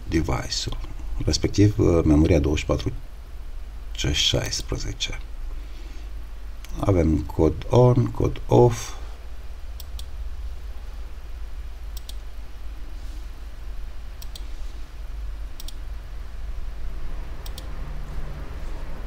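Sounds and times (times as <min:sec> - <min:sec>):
steady low hum: 0:00.0 - 0:19.0
computer mouse clicking: 0:09.8 - 0:10.1, 0:11.9 - 0:12.3, 0:14.2 - 0:14.5, 0:15.6 - 0:15.8, 0:17.4 - 0:17.8.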